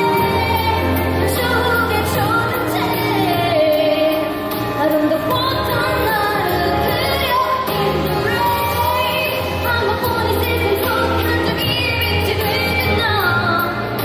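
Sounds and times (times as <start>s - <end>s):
backing music: 0.0s - 14.0s
woman singing pop ballad: 0.0s - 14.0s.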